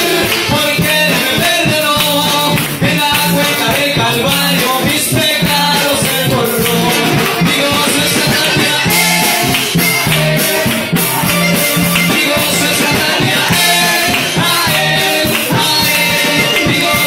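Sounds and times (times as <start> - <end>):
accordion: 0.0 - 17.0
live band playing upbeat song: 0.0 - 17.0
steady drumbeat: 0.0 - 17.0.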